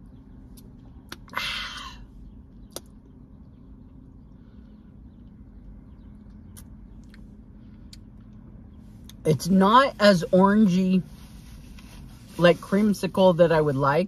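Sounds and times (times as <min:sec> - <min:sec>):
low steady hum: 0:00.0 - 0:14.0
mouth clicks: 0:02.6 - 0:03.0.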